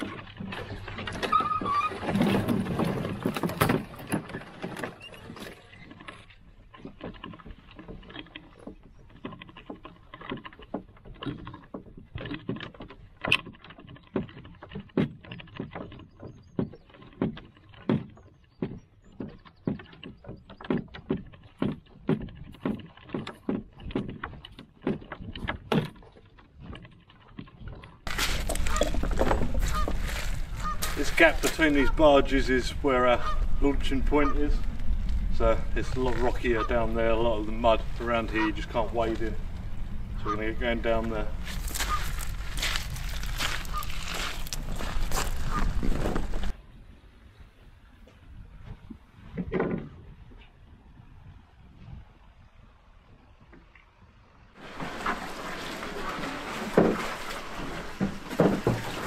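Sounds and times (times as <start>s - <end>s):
branches scraping canoe: 0.0s - 46.6s, 54.6s - 59.0s
footsteps on grass and shingle: 28.1s - 33.1s, 40.8s - 46.5s.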